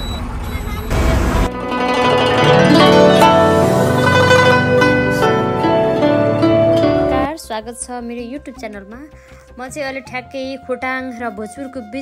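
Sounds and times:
plucked string melody: 1.4s - 8.8s.

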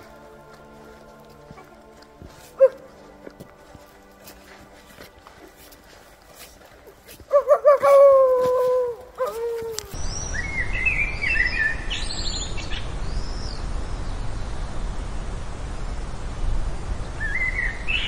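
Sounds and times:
low outdoor rumble: 9.8s - 17.9s.

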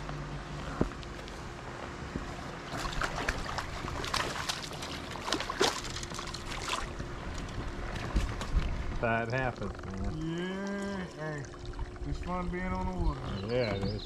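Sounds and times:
fish splashing at surface: 2.7s - 7.0s.

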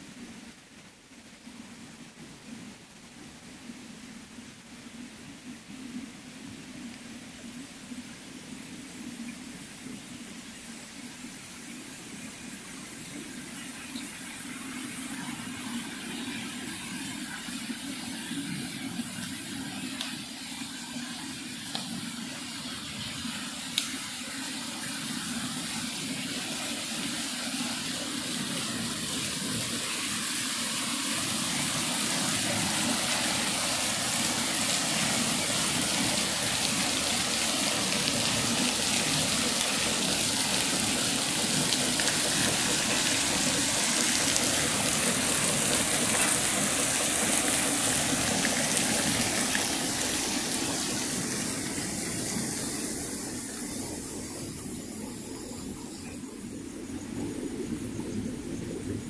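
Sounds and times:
water splashing into a pool: 13.8s - 59.0s.

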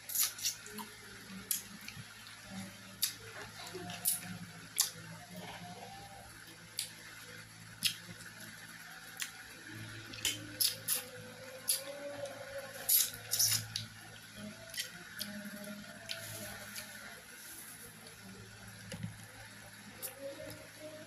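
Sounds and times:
chewing clicks: 7.8s - 8.0s.

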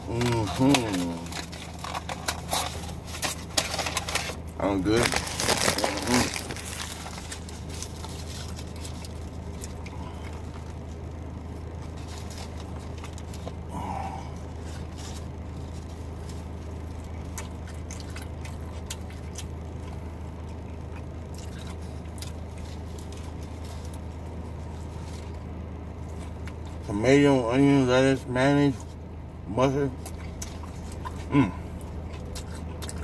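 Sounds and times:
paper wrapper crinkling: 0.0s - 9.8s, 10.4s - 13.6s
car cabin low hum: 0.0s - 33.0s
chewing with wet clicks: 8.5s - 10.8s, 16.8s - 24.2s, 30.0s - 33.0s.

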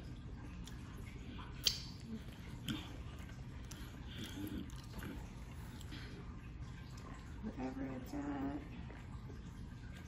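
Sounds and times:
low steady hum: 0.0s - 10.0s
person sipping and swallowing: 0.6s - 6.3s.

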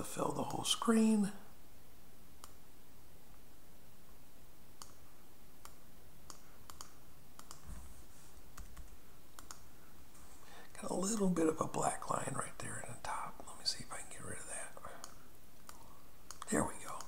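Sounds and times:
computer mouse clicking: 2.4s - 2.6s, 4.8s - 5.0s, 5.6s - 7.7s, 8.6s - 9.7s, 15.0s - 17.0s.

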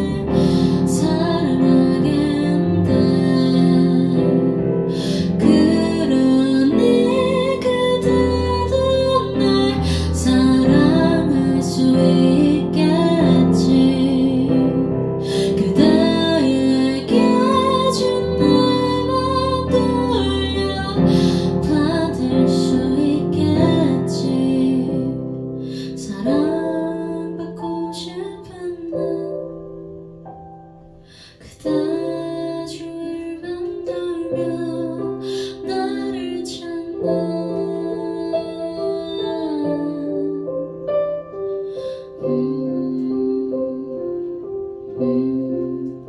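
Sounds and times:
woman singing with vibrato: 0.0s - 25.2s, 25.9s - 29.6s, 31.5s - 40.8s, 42.1s - 46.0s.

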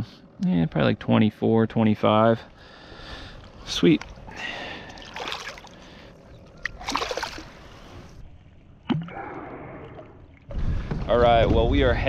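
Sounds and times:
water splashing against kayak: 6.6s - 8.2s.

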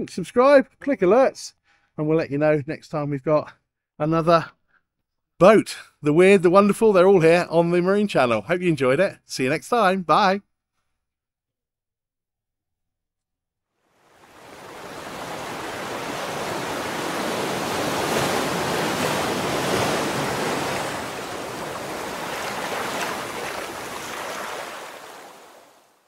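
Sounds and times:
rushing surf-like wave noise: 13.9s - 26.0s.

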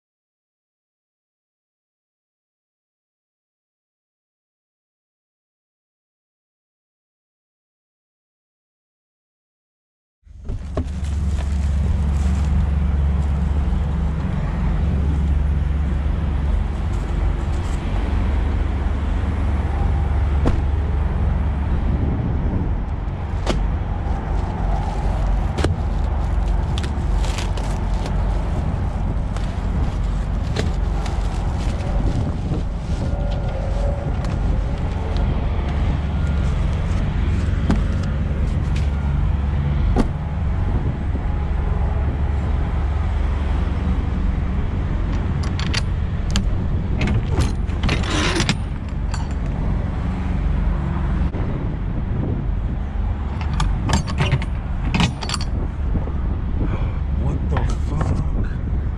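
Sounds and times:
diesel truck engine idling: 10.6s - 33.6s.

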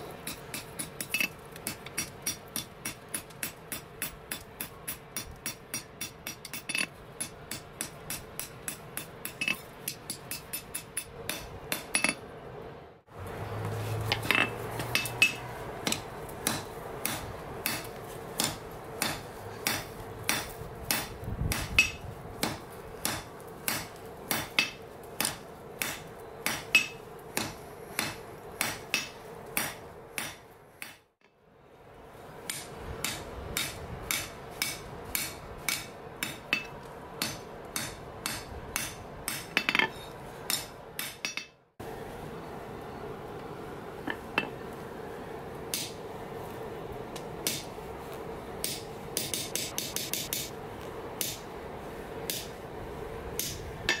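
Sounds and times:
hammer striking metal on anvil: 0.2s - 12.2s, 14.1s - 31.0s, 32.5s - 41.6s, 48.6s - 50.5s, 53.4s - 54.0s
steady hum: 31.4s - 54.0s.

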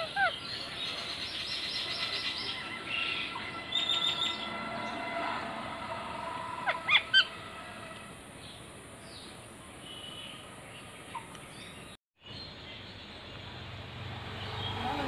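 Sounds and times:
parakeet sharp calls: 6.6s - 7.3s.

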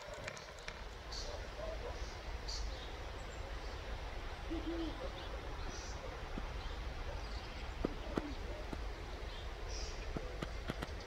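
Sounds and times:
low flat bird hoot: 4.4s - 8.8s.

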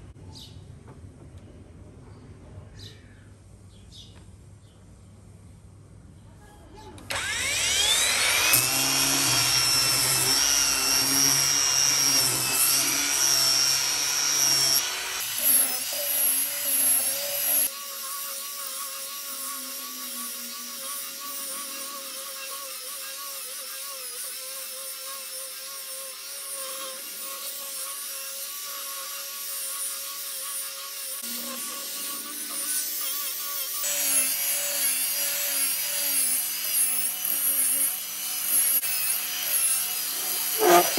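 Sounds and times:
angle grinder motor whine: 7.1s - 23.2s, 26.6s - 40.9s
sanding pad rasping on wood: 7.2s - 40.9s.

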